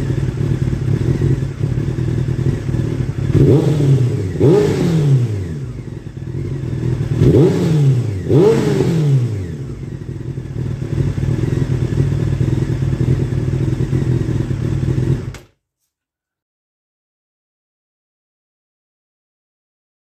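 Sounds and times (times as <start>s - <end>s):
motorcycle engine revving and idling: 0.0s - 15.5s.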